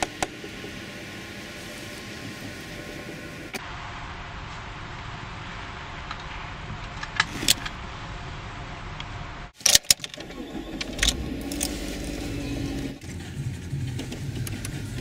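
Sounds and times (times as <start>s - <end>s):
car engine starting and running: 0.0s - 15.0s
keys rattling in ignition: 9.6s - 15.0s.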